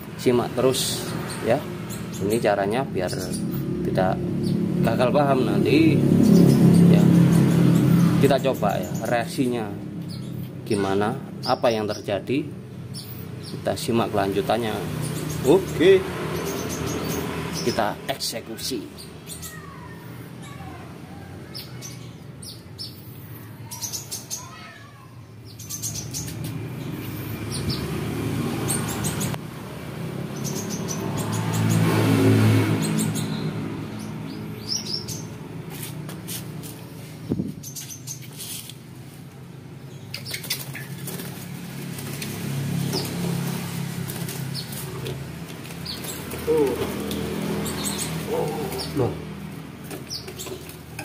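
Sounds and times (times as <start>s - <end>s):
passing vehicle hum: 0.0s - 11.4s, 12.5s - 23.5s, 25.6s - 51.0s
bird chirping: 0.0s - 29.4s, 30.2s - 38.8s, 39.8s - 51.0s
bird wings flapping: 40.3s - 47.2s.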